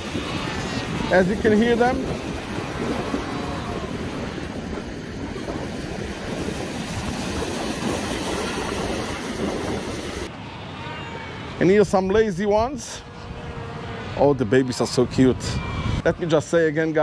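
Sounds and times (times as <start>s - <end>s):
seals calling: 0.0s - 5.6s, 10.2s - 11.9s
surf breaking on rocks: 0.0s - 10.3s.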